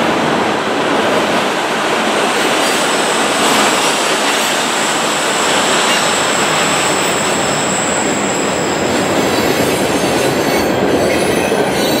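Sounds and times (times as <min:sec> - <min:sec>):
train wheels rumbling on track: 0:00.0 - 0:12.0
high-pitched squeal: 0:05.7 - 0:09.7.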